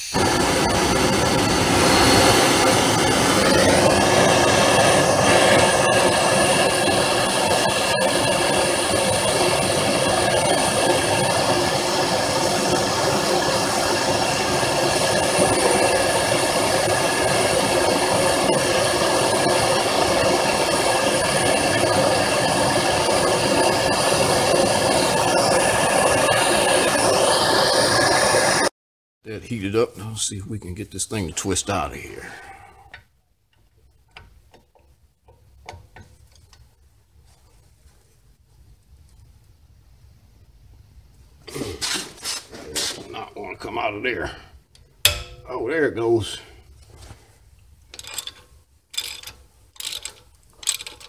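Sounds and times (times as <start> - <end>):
gas torch hissing: 0.0 - 28.7, 41.4 - 44.5.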